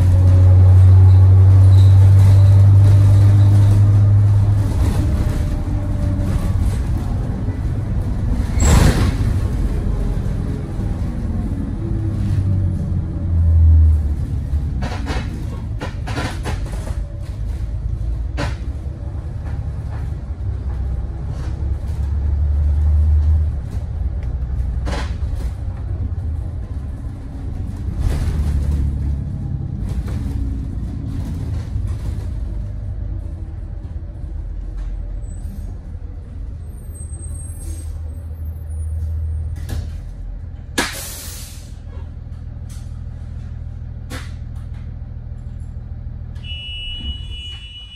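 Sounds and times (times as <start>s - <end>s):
bus body knocks and rattles: 0.0s - 11.3s, 14.1s - 22.1s, 23.2s - 35.1s
bus engine drone: 0.0s - 47.9s.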